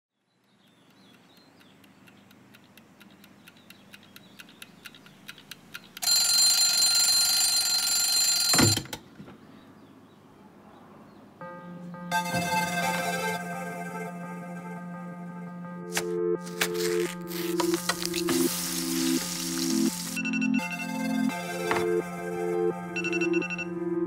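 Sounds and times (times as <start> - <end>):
alarm clock ticking: 0.6 - 8.8, 22.8 - 23.7
alarm clock ringing: 6.0 - 8.9, 22.9 - 23.7.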